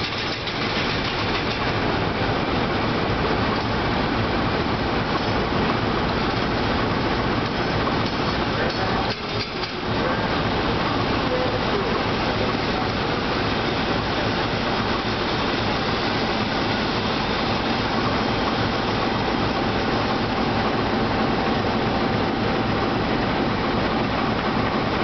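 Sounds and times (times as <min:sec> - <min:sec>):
diesel locomotive running: 0:00.0 - 0:25.0
freight train rolling on rails: 0:00.0 - 0:25.0.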